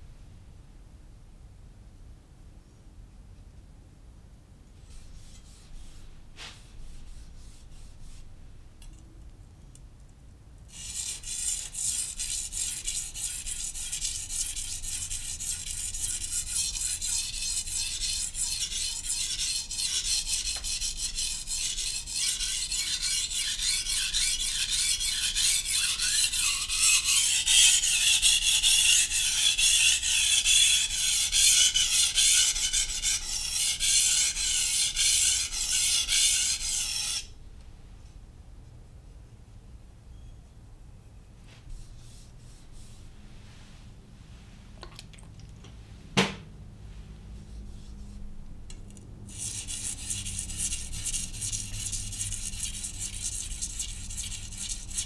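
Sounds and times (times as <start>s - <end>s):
knife scraping on whetstone: 10.7s - 37.2s.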